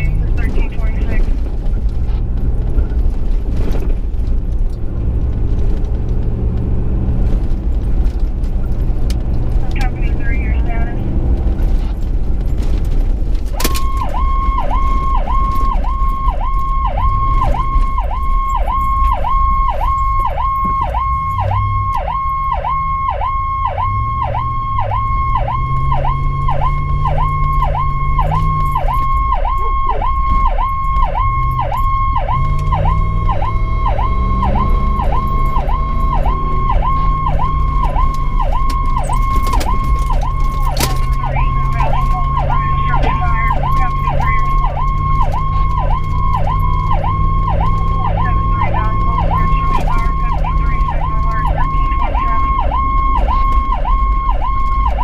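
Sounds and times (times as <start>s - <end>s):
siren yelping: 0.0s - 1.4s, 13.5s - 55.0s
vehicle engine: 0.0s - 55.0s.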